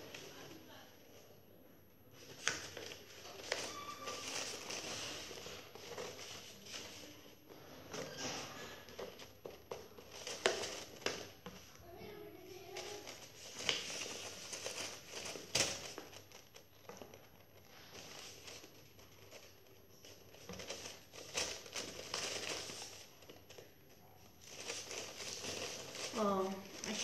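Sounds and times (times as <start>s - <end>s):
paper rustling and crinkling: 2.1s - 27.0s.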